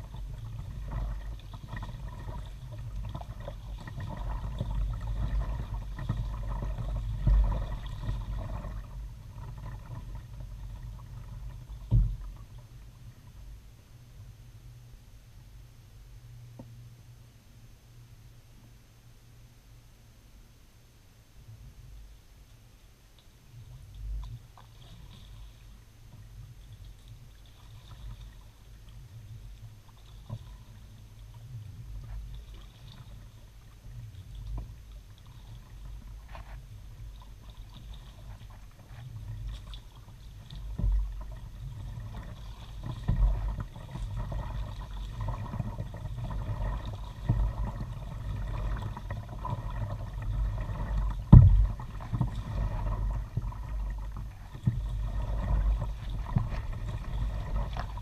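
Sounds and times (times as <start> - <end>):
water splashing against hull: 0.0 - 13.7, 23.1 - 58.0
wind rumble on microphone: 27.7 - 58.0.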